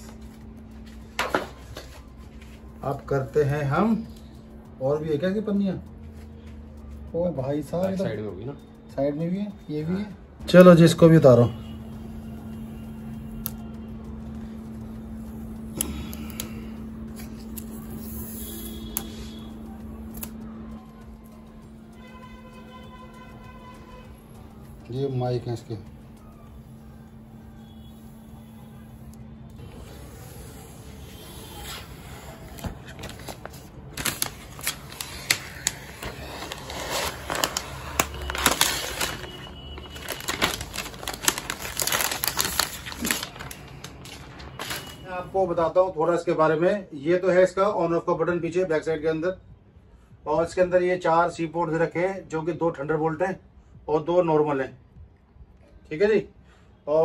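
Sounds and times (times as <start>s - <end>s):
plastic film peeling and crackling: 10.7s - 45.3s
steady low hum: 11.5s - 44.5s.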